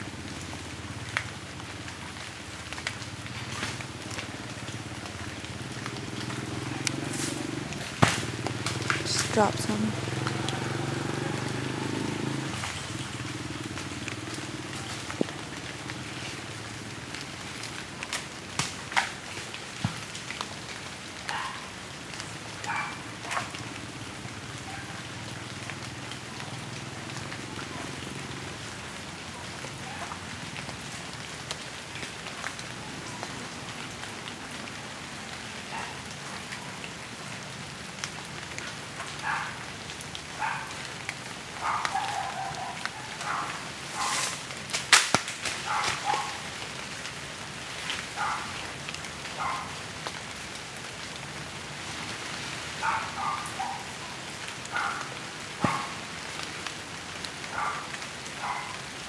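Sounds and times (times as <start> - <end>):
rain-like hiss: 0.0 - 59.0
sharp crack: 7.2 - 9.4, 18.1 - 19.2, 43.9 - 46.3.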